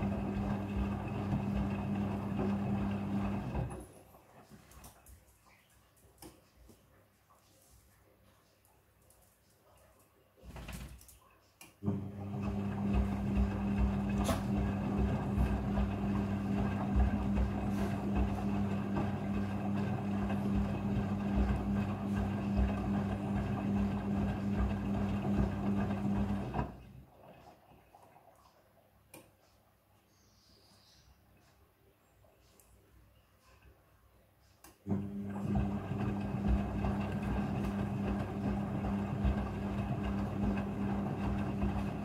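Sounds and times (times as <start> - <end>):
washing machine drum motor hum: 0.0 - 3.9, 11.8 - 27.4, 34.9 - 42.0.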